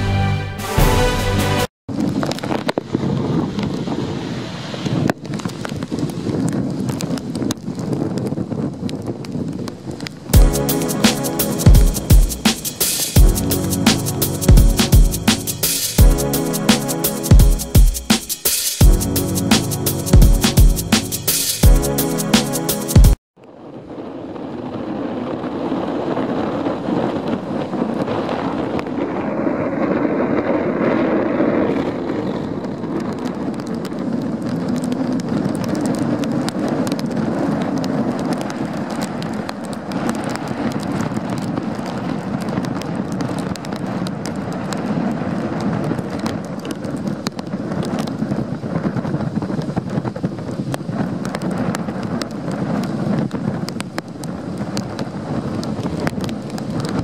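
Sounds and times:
wind buffeting microphone: 1.9s - 10.8s, 23.7s - 57.0s.

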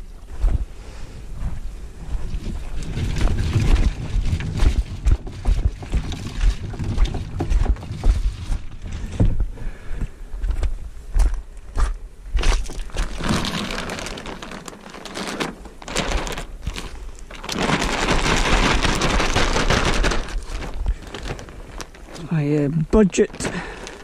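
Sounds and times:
cover crinkling and rustling: 12.4s - 24.0s.

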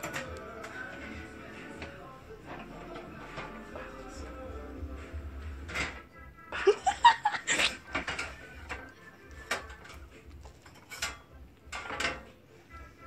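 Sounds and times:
pop music: 0.0s - 11.1s
person laughing: 6.5s - 7.9s.

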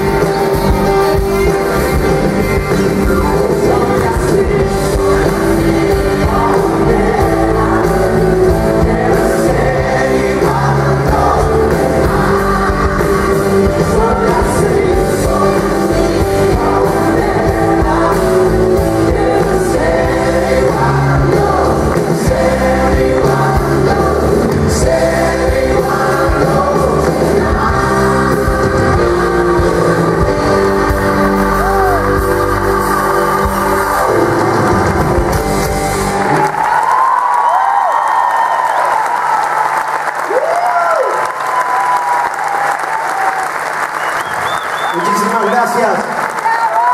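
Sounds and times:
singing over band: 0.0s - 37.0s
live pop-rock band playing: 0.0s - 37.4s.

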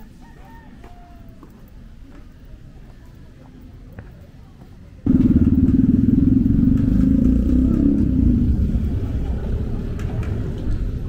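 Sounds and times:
small motorcycle engine running: 5.1s - 9.9s.

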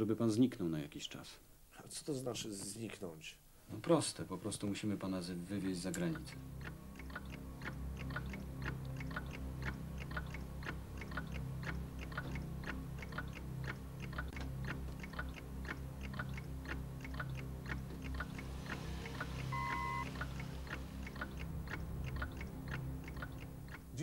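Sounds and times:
low steady drone: 5.4s - 24.0s
fast ticking beat: 6.0s - 24.0s.

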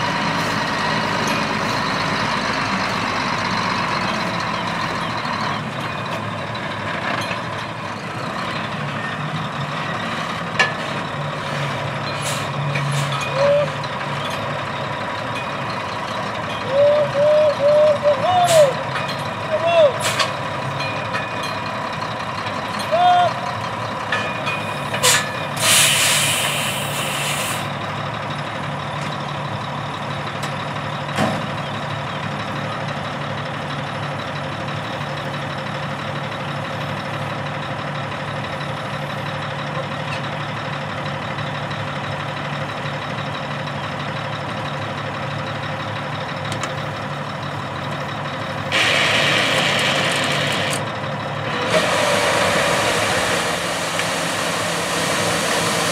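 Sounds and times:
diesel truck engine running: 0.0s - 55.9s
loud hissing burst: 25.6s - 27.6s.

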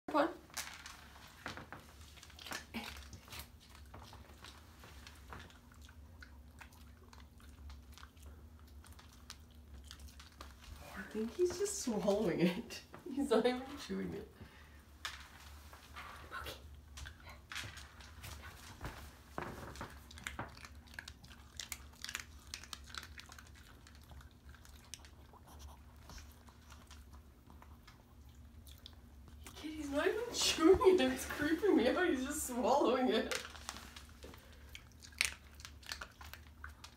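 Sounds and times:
dog crunching dry food: 0.5s - 11.5s, 16.9s - 29.9s, 33.1s - 36.9s.

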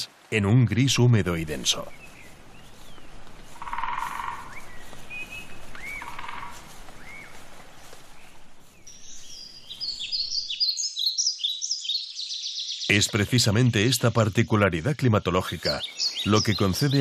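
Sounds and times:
steady background hiss: 0.0s - 10.9s
short arching bird calls: 1.9s - 7.4s, 8.8s - 13.0s
bird singing high notes: 8.8s - 14.0s.

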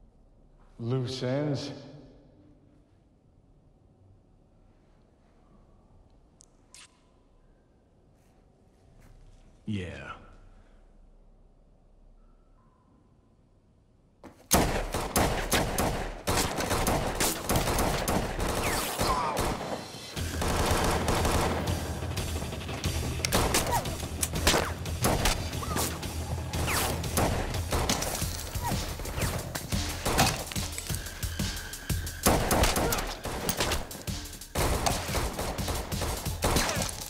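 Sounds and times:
rapid gunshots: 14.5s - 37.0s.

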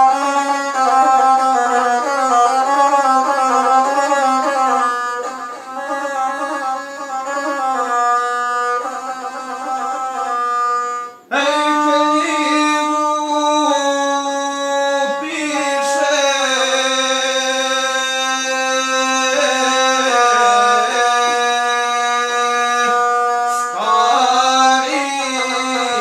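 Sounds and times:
bowed single-string folk instrument: 0.0s - 26.0s
person singing: 11.2s - 26.0s.

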